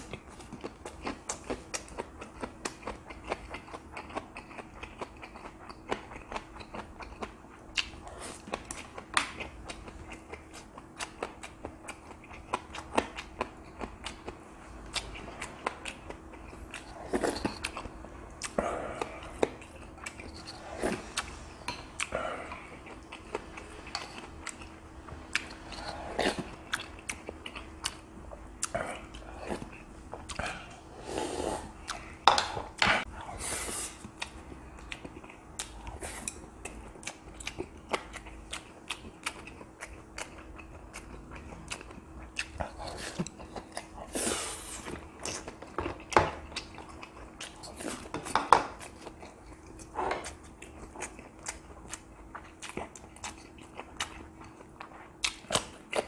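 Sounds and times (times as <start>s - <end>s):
chewing and mouth sounds: 0.0s - 56.0s
faint steady hum: 0.0s - 56.0s
slurping from a bowl: 30.9s - 31.8s.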